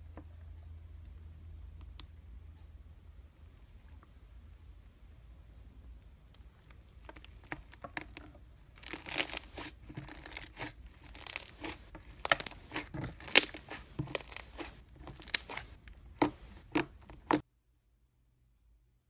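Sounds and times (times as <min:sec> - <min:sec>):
slime crackling and popping: 0:06.6 - 0:17.4.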